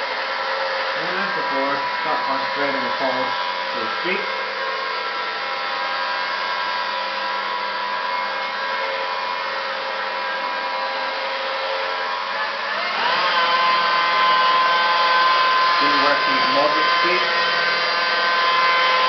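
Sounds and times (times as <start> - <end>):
machine polisher motor whine: 0.0 - 19.0.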